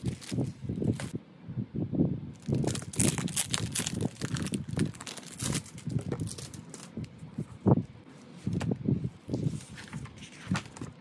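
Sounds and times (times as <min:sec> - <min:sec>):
plastic packaging crinkling: 0:00.0 - 0:01.1, 0:02.4 - 0:07.1.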